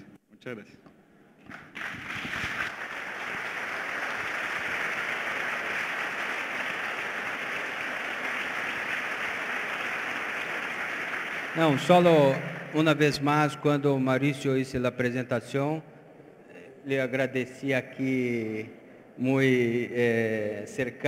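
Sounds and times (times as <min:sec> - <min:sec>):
audience applauding: 0:01.5 - 0:13.2.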